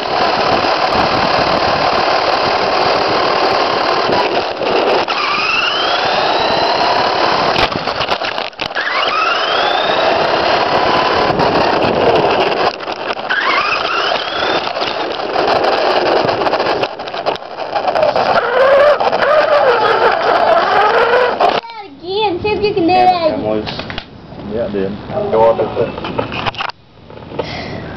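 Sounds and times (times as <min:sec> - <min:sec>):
rc truck motor whining: 0:00.0 - 0:21.7
tyre and chassis noise: 0:00.0 - 0:27.9.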